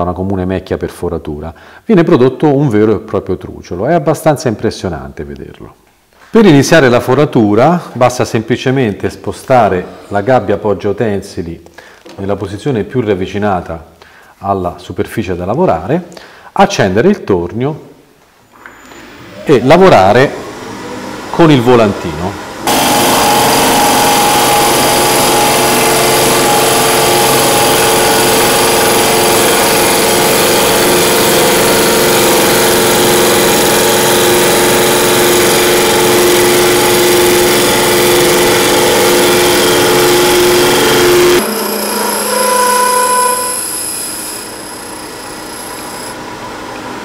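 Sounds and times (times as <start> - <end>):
wood lathe running: 20.4 - 47.0
boring cutter cutting wood: 22.6 - 46.8.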